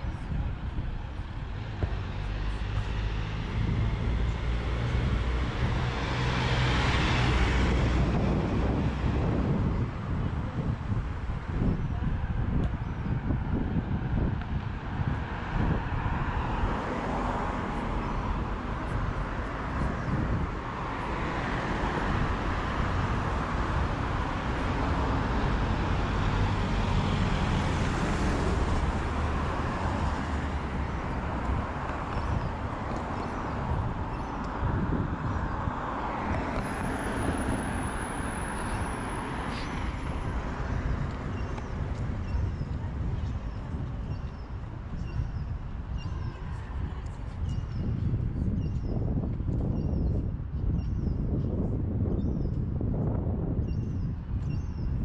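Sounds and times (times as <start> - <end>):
cars driving past: 1.3 - 10.2, 14.2 - 44.6.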